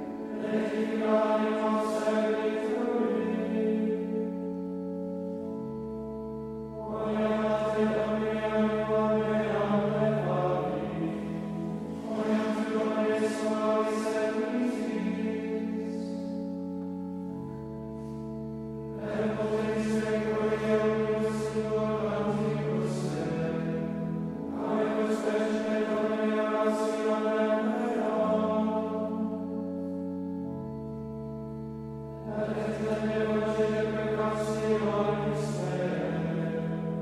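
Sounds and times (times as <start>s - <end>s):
men's choir chanting: 0.4s - 3.6s, 19.0s - 23.7s, 24.5s - 29.2s.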